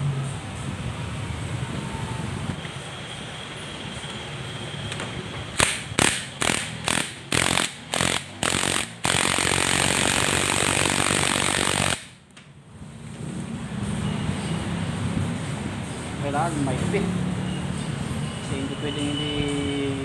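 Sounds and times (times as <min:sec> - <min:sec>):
impact wrench hammering: 0:05.6 - 0:12.2.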